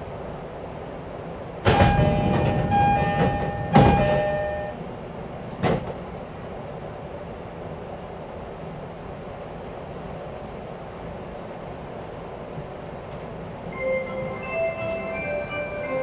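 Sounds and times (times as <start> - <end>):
train door thump: 1.6 - 4.8, 5.5 - 6.0
sharp knocks: 1.7 - 4.4
electronic door chime: 1.8 - 4.8.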